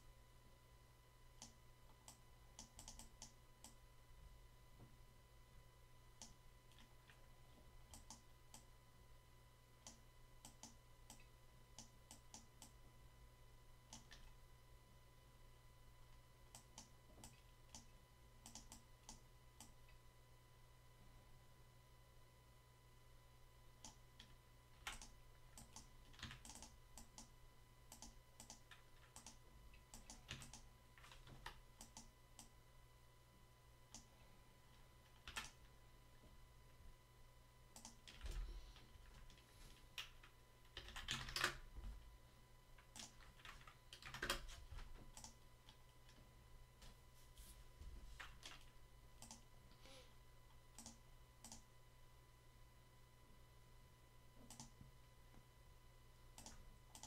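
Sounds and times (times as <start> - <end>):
low electrical hum: 0.0 - 57.0
keyboard and mouse clicking: 1.4 - 3.8, 6.2 - 7.2, 7.9 - 8.7, 9.8 - 12.8, 13.9 - 14.4, 16.5 - 20.0, 23.8 - 32.5, 33.9 - 34.1, 35.1 - 35.6, 37.7 - 41.6, 42.8 - 46.2, 48.2 - 49.5, 50.8 - 51.6, 54.4 - 54.8, 56.4 - 57.0
faint computer mouse clicks: 9.8 - 12.8, 27.9 - 32.5, 49.2 - 49.4, 50.8 - 51.6, 54.4 - 54.8.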